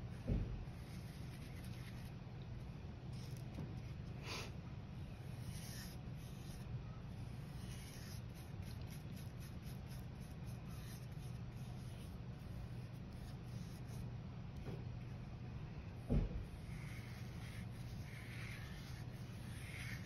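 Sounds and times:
steady low hum: 0.0s - 20.0s
paintbrush swishing on paper: 0.8s - 2.1s, 7.4s - 14.0s, 16.5s - 20.0s.

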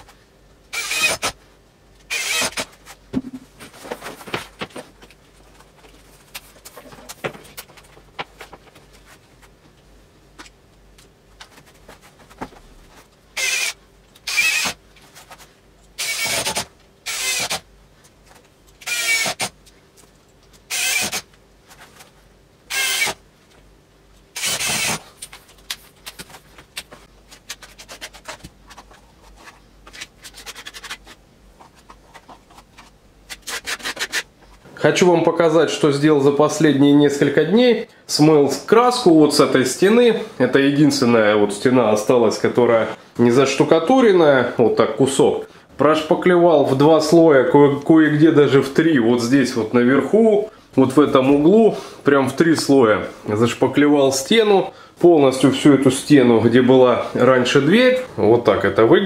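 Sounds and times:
cordless drill bursts: 0.7s - 1.4s, 2.1s - 2.7s, 13.4s - 14.8s, 16.0s - 17.6s, 18.8s - 19.5s, 20.7s - 21.3s, 22.7s - 23.2s, 24.4s - 25.0s.

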